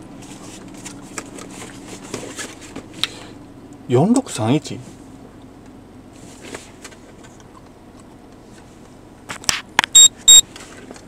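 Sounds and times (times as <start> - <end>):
low steady hum: 0.0 - 10.4
short electronic beeps: 9.9 - 10.4.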